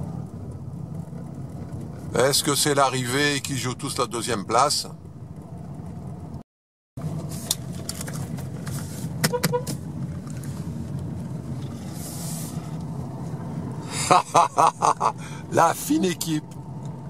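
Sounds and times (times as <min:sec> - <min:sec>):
car engine and road rumble: 0:00.0 - 0:06.4, 0:07.0 - 0:17.0
car horn toots: 0:09.2 - 0:09.8.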